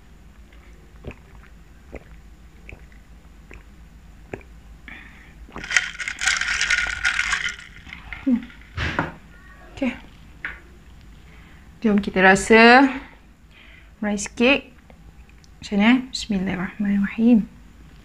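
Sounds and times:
sipping and swallowing: 0.5s - 4.6s.

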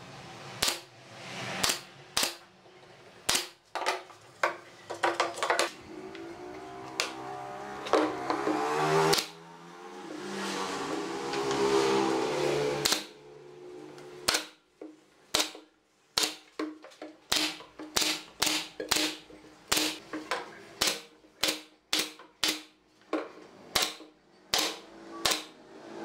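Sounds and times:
nail gun firing: 0.6s - 0.9s, 1.6s - 2.5s, 3.3s - 3.6s, 9.1s - 9.4s, 12.8s - 13.2s, 14.2s - 14.6s, 15.3s - 16.5s, 17.3s - 20.0s, 20.8s - 22.7s, 23.7s - 25.6s
mechanical hum: 4.1s - 14.3s.

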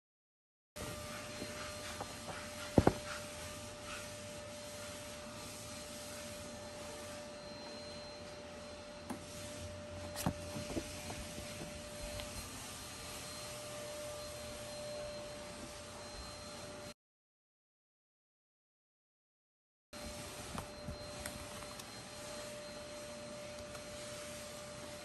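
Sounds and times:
soft knocks of books: 2.7s - 3.2s.

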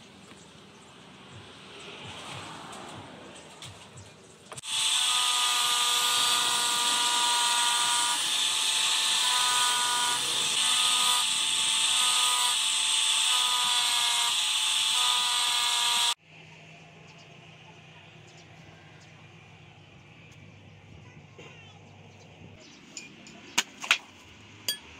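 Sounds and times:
angle grinder grinding steel: 4.5s - 16.2s.

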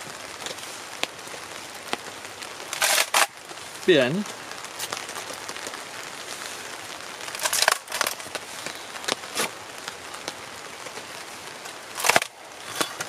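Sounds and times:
rain hissing: 0.0s - 13.0s
wood cracking and creaking: 2.6s - 3.4s, 7.2s - 13.0s.

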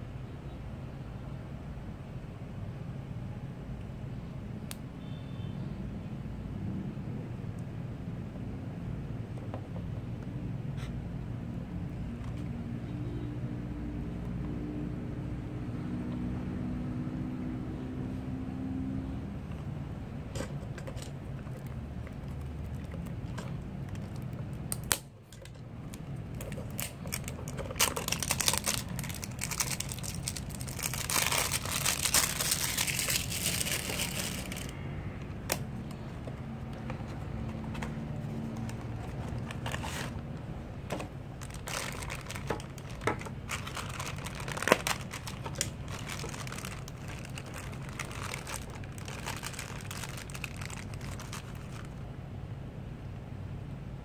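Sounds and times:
packaging tearing and rustling: 25.9s - 34.7s, 36.8s - 40.3s, 40.9s - 52.0s
foil bag crinkling: 26.2s - 34.7s, 38.2s - 40.2s, 41.3s - 52.0s.

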